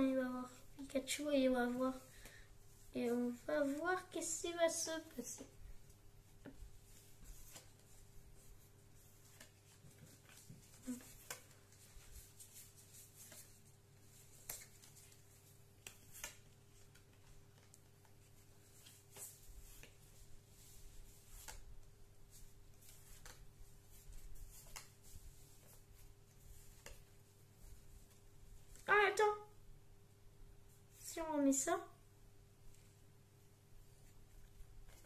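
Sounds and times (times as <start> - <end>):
low room hum: 0.0 - 35.0
cards rustling and clicking: 6.4 - 28.9.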